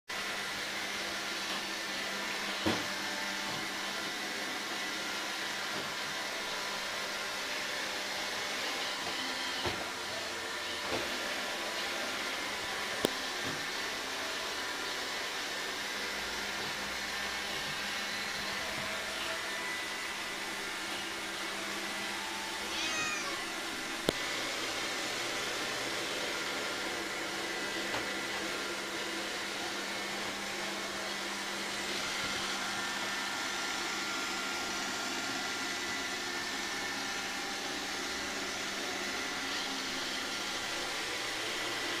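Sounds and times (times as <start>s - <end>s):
cat meowing: 22.6s - 23.7s.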